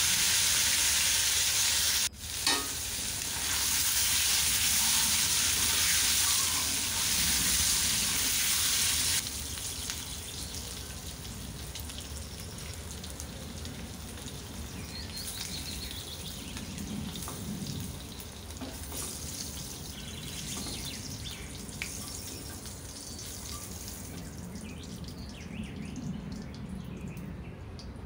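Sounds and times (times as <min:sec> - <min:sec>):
hot oil sizzling in a pan: 0:00.0 - 0:25.0.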